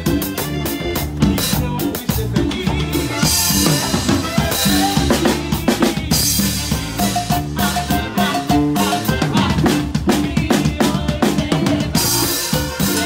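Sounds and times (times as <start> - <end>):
band playing: 0.0 - 13.0
drum kit playing: 0.0 - 13.0.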